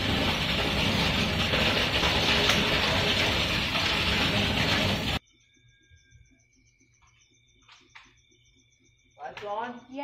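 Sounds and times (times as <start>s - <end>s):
water gushing into plastic tank: 0.0s - 5.2s.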